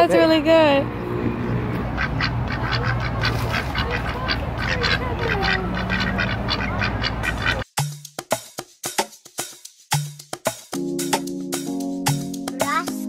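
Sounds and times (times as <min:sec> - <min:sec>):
ducks quacking: 0:01.4 - 0:07.6.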